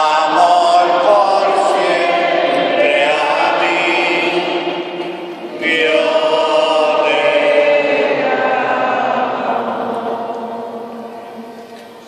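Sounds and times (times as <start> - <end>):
group singing a slow hymn: 0.0 - 12.0.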